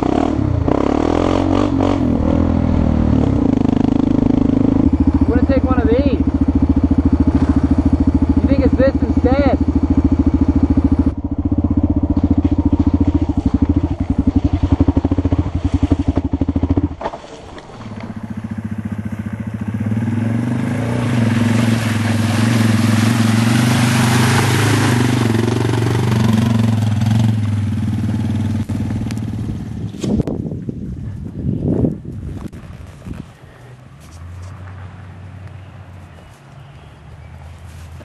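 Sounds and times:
motorcycle engines idling: 2.6 - 30.0
dirt bike engine under load: 3.7 - 23.6
water splashing: 17.0 - 29.0.

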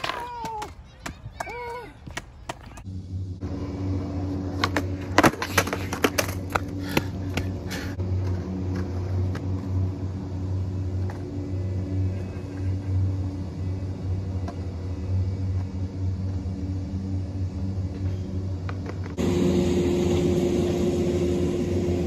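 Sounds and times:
low engine-like hum: 0.3 - 22.0
skateboard clacking on concrete: 4.5 - 7.5.

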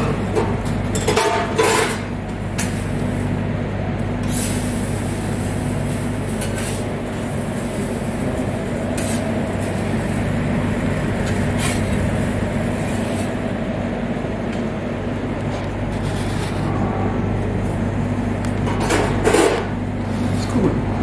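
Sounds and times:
kitchen equipment humming: 0.0 - 21.0
griddle hissing: 4.2 - 13.8.

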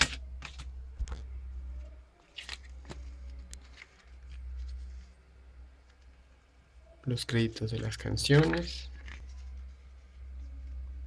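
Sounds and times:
steady low hum: 0.0 - 11.0
paper rustling: 2.2 - 5.2, 7.8 - 10.2.

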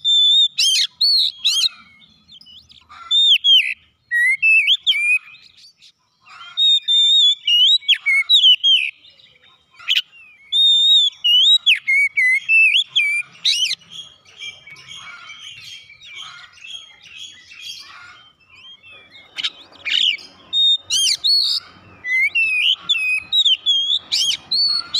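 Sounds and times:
bird singing whistled phrases: 0.0 - 5.9, 6.6 - 24.9
bird scratchy chatter: 11.2 - 24.9.

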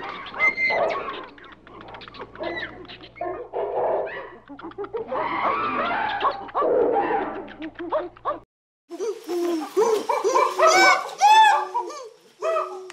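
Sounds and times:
animal yelps and chirps: 0.0 - 8.4, 9.0 - 12.9.

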